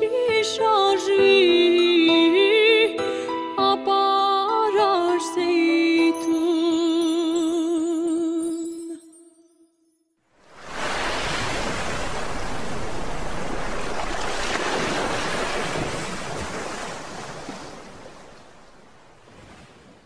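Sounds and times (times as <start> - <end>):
sea surf rushing: 10.3 - 20.0.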